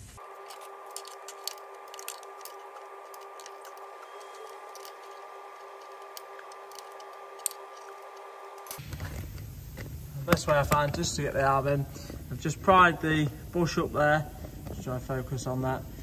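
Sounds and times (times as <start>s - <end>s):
steady thin hum: 0.0s - 16.0s
metal hand tools clicking: 0.3s - 8.9s.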